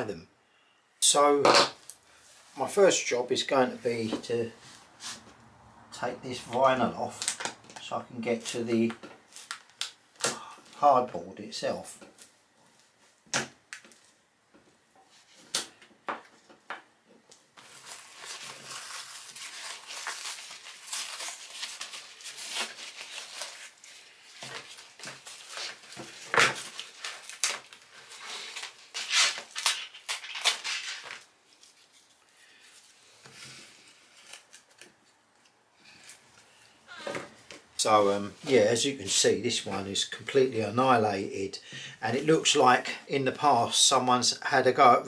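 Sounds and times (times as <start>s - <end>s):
vinyl and foam tearing: 17.6s - 31.3s
ripping and scraping: 17.6s - 32.1s.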